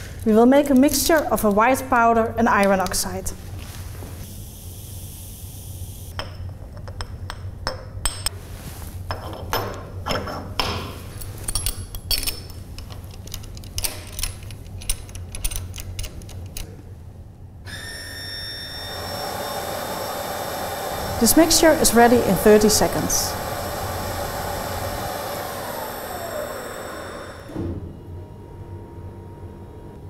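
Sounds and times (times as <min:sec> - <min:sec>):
mixer motor whirring: 0:17.7 - 0:29.2.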